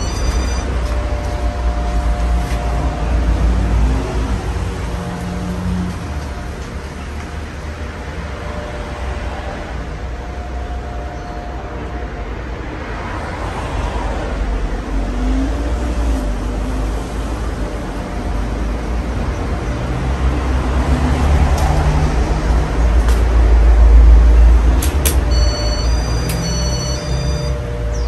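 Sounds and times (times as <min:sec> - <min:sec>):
sharp clicks: 0:24.8 - 0:25.3, 0:26.2 - 0:26.6.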